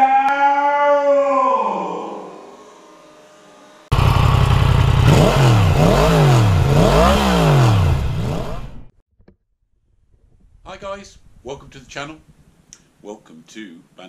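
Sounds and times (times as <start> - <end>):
motorcycle engine revving: 3.9 - 9.0.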